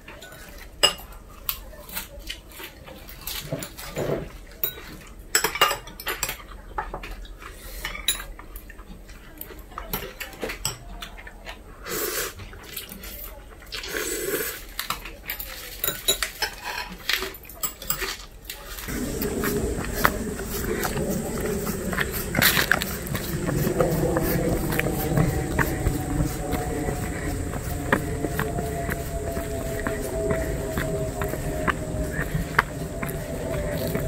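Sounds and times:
utensils clinking against bowls: 15.4s - 18.3s.

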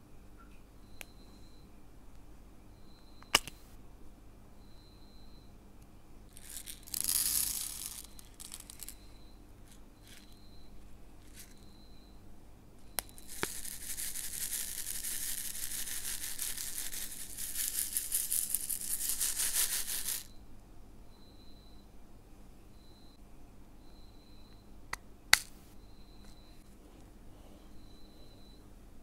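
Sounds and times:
beads poured into plastic tray: 6.3s - 9.0s, 13.0s - 20.3s
beads rattling in shaken tray: 6.3s - 9.0s, 10.0s - 10.3s, 11.2s - 11.5s, 13.0s - 20.3s.

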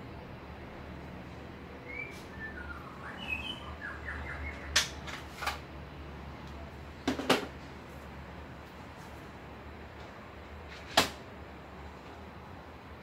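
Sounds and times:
low steady hum: 0.0s - 10.6s
faint bird chirps: 1.8s - 4.8s
clicks and knocks on metal cabinet: 7.0s - 7.6s.

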